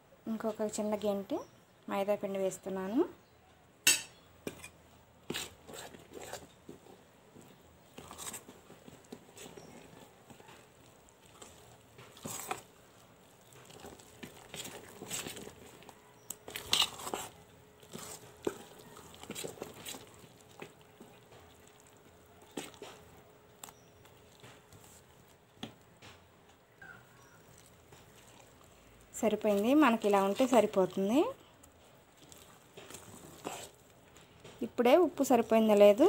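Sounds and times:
spoon scraping steel bowl: 16.5s - 18.6s, 32.3s - 33.8s.

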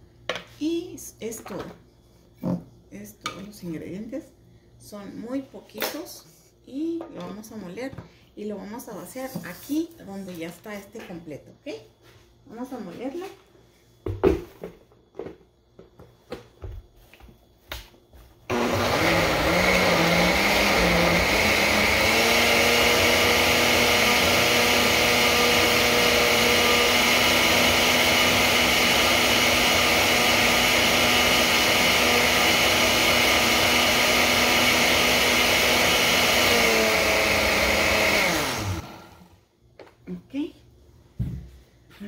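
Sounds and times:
blender motor whining: 18.5s - 39.4s.

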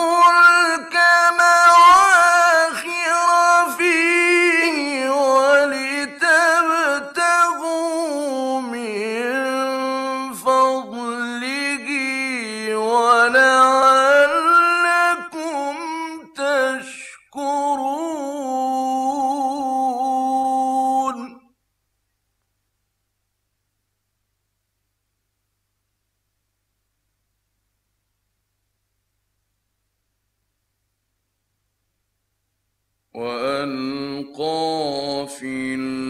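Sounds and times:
man chanting melodically: 0.0s - 21.5s, 33.2s - 36.0s.

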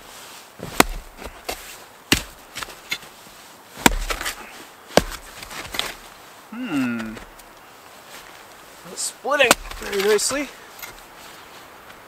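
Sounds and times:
axe chopping wood: 0.6s - 3.0s, 3.8s - 6.0s, 9.4s - 10.5s.

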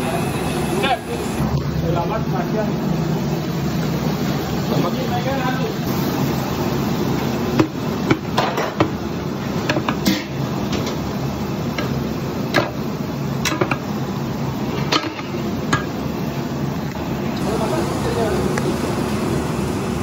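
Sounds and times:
steady low hum: 0.0s - 20.0s
utensils knocking on cookware: 7.6s - 9.0s, 9.6s - 11.0s, 11.7s - 12.8s, 13.4s - 13.8s, 14.8s - 16.0s.

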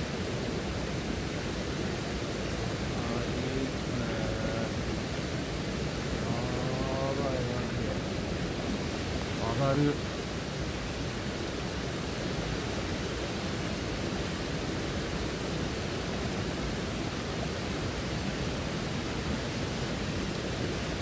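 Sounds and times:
rocky stream running: 0.0s - 21.0s
waterfall rushing: 0.0s - 21.0s.

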